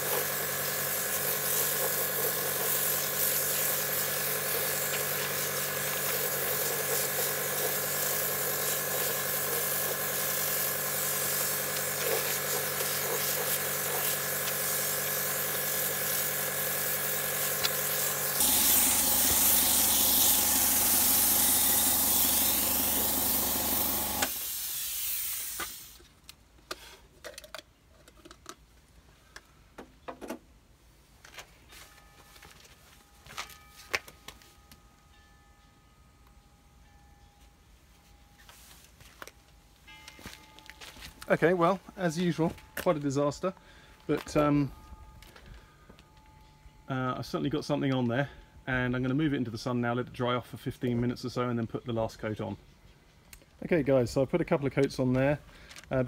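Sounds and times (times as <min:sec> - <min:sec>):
air compressor motor running: 0:00.0 - 0:25.9
air spray gun hissing: 0:00.0 - 0:26.0.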